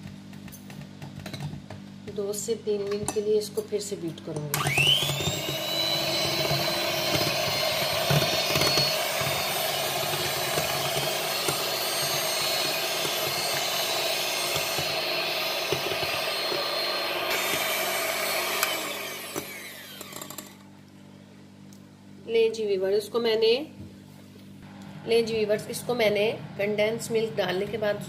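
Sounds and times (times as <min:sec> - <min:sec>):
electric hand mixer whisking: 0:04.5 - 0:20.6.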